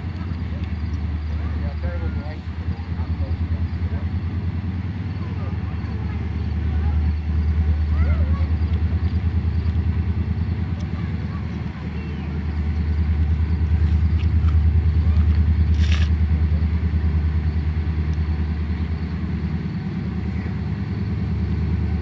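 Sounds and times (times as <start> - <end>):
diesel locomotive rumble: 0.0 - 22.0.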